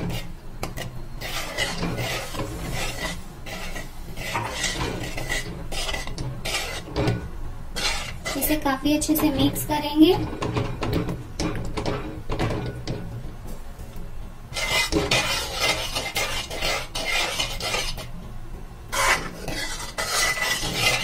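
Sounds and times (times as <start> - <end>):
metal spoon scraping metal pan: 0.0 - 8.6, 14.5 - 18.1, 18.9 - 21.0.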